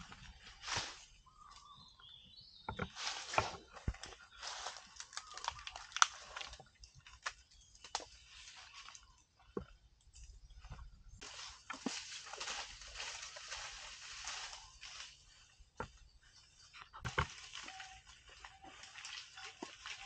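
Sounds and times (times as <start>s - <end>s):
rustling and crunching of leaves: 0.0s - 1.8s, 2.8s - 9.2s, 11.1s - 20.0s
branches snapping: 2.8s - 8.2s.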